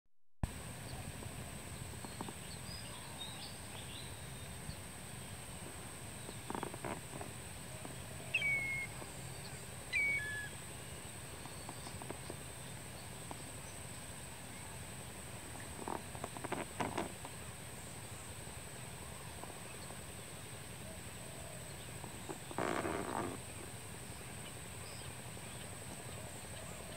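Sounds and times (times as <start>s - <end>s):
constant high whine: 0.4s - 26.9s
steady hiss: 0.4s - 26.9s
faint high chirps: 7.9s - 10.6s
whistled bird calls: 8.2s - 10.6s.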